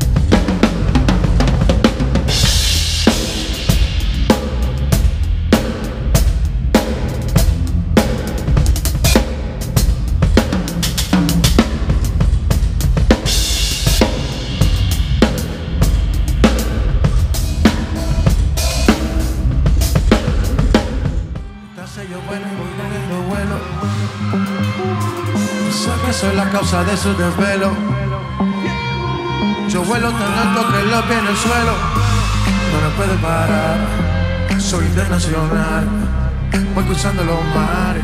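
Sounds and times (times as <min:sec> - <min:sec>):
drum kit playing a groove: 0:00.0 - 0:21.5
heavy bass: 0:00.0 - 0:38.0.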